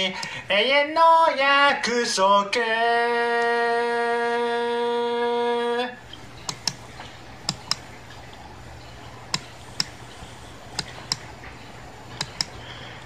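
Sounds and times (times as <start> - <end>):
faint low hum: 0.0 - 13.0
sharp clicks in pairs: 6.1 - 6.8, 7.4 - 7.9, 9.3 - 10.0, 10.7 - 11.3, 12.1 - 12.6.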